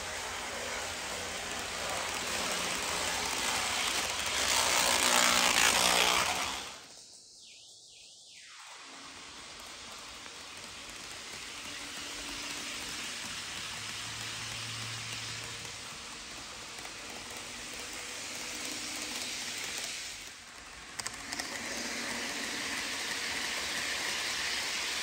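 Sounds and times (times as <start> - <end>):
model train wheels rolling: 0.0 - 7.2, 8.8 - 25.0
faint motor whir: 8.6 - 25.0.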